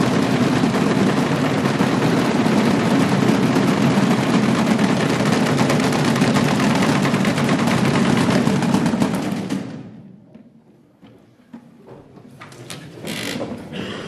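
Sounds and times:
people beating wooden boxes: 0.0s - 10.2s.

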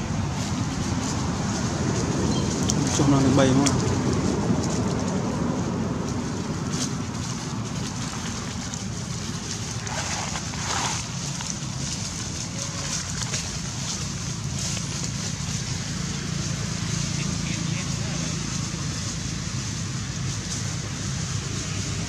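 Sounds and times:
low outdoor rumble: 0.0s - 22.0s.

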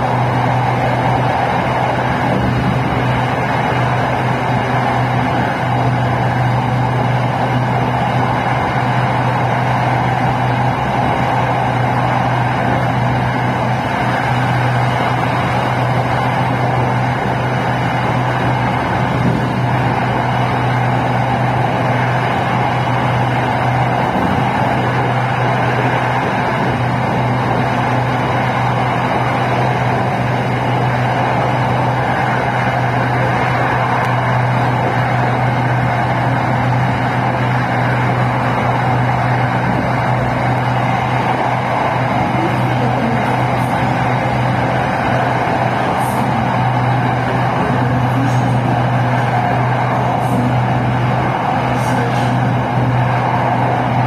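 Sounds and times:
electric train running: 0.0s - 54.0s.

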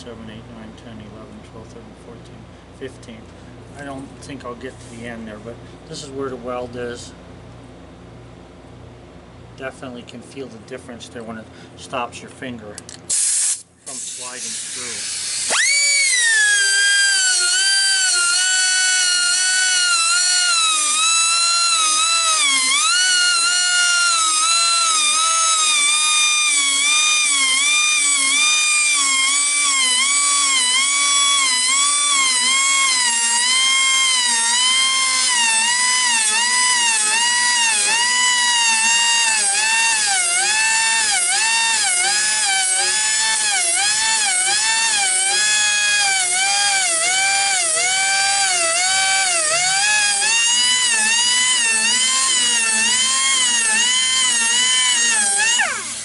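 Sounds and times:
grinder motor whine: 14.0s - 56.0s.

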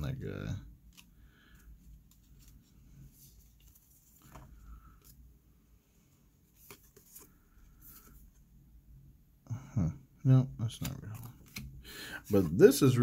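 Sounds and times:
trading cards flipped by hand: 0.8s - 1.2s, 6.5s - 8.2s, 10.8s - 12.5s.

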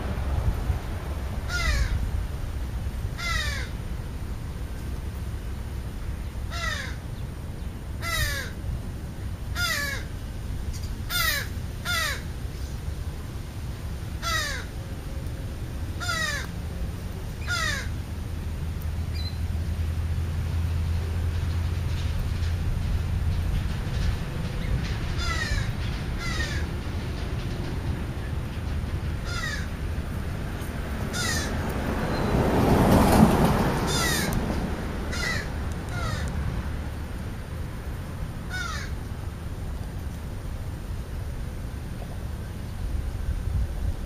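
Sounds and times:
crows cawing: 1.5s - 2.0s, 3.2s - 3.8s, 6.5s - 7.0s, 8.0s - 8.6s, 9.6s - 10.1s, 11.1s - 12.2s, 14.2s - 14.7s, 16.0s - 16.5s, 17.4s - 18.0s, 25.2s - 26.7s, 29.2s - 29.8s, 31.1s - 31.6s, 33.9s - 34.4s, 35.1s - 36.3s, 38.5s - 39.0s.

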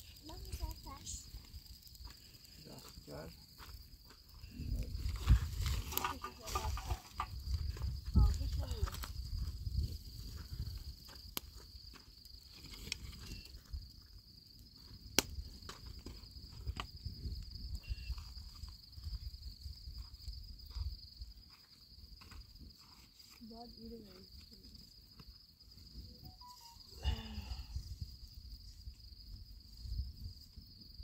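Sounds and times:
campfire crackling: 0.0s - 31.0s
crickets chirring: 0.0s - 31.0s
footsteps on stony ground: 2.0s - 13.6s, 17.9s - 24.3s.

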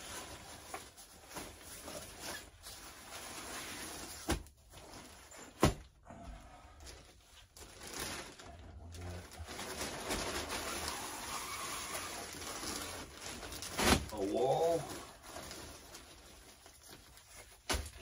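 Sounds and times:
fabric and plastic rustling: 0.0s - 18.0s.

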